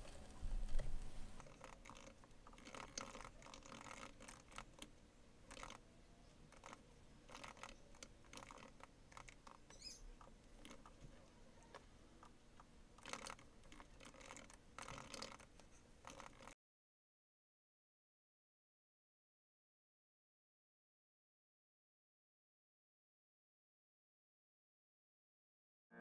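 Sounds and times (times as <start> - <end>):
faint laptop typing: 0.0 - 16.6.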